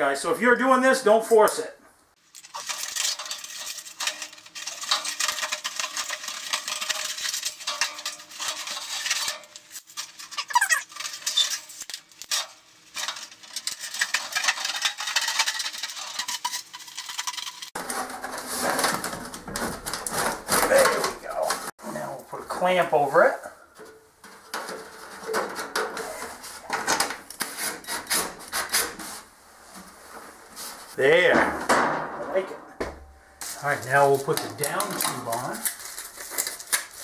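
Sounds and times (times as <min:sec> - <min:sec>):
foil duct crinkling and rustling: 0:02.2 - 0:21.7, 0:33.4 - 0:37.0
snips cutting metal foil: 0:02.3 - 0:17.7, 0:34.3 - 0:37.0.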